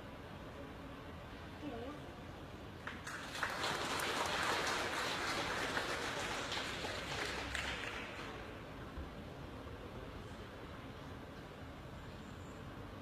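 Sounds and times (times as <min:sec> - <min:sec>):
distant crowd applause: 0:02.8 - 0:08.7.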